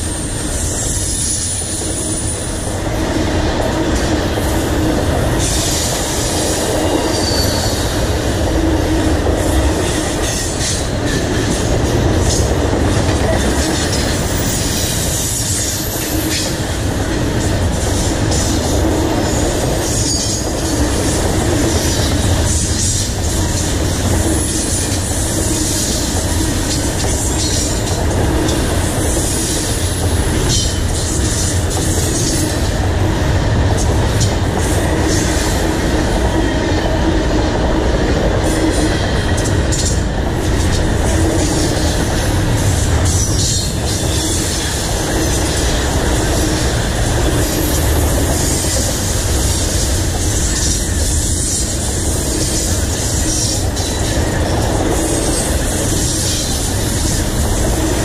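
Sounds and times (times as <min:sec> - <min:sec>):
freight train wheels rumbling: 0:00.0 - 0:58.0
train cars clattering: 0:00.0 - 0:58.0.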